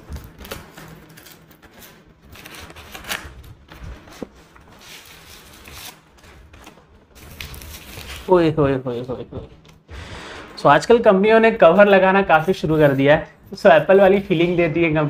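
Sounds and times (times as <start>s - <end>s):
cardboard rustling and scraping: 0.0s - 9.1s, 11.6s - 14.8s.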